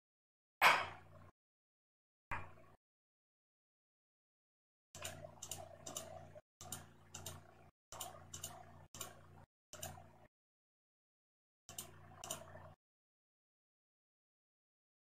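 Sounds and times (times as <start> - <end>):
computer mouse clicking: 5.0 - 10.0, 11.7 - 12.7.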